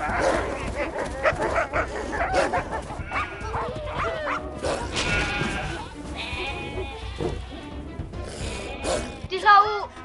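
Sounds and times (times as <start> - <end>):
sheep bleating in distress: 3.0 - 10.0.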